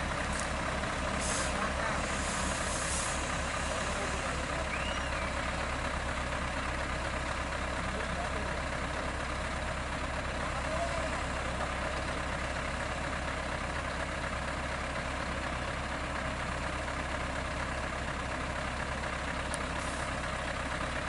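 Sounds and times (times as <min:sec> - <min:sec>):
diesel truck engines under load: 0:00.0 - 0:21.0
short air hisses: 0:01.1 - 0:03.4.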